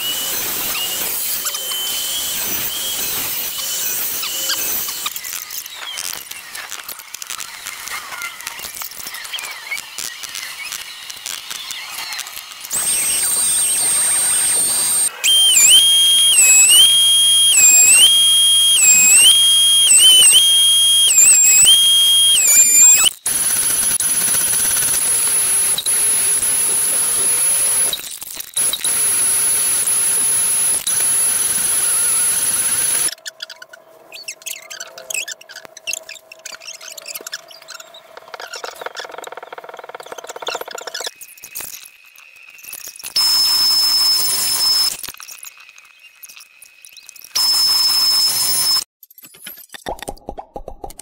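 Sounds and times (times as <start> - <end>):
thickness planer whining: 12.8 - 23.1.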